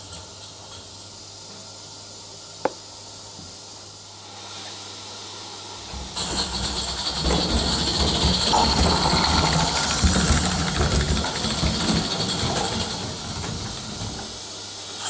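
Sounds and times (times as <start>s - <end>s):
steam hissing: 4.1s - 15.0s
model train wheels rumbling: 6.1s - 14.4s
wheels clicking at rail joints: 6.2s - 14.4s.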